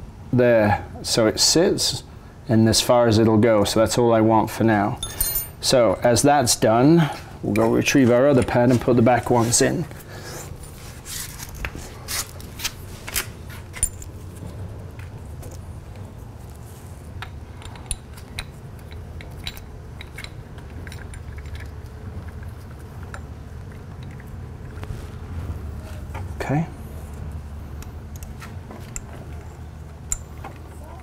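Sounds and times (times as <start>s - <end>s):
low steady hum: 0.0s - 31.0s
metallic clicks of brake parts: 17.2s - 21.6s.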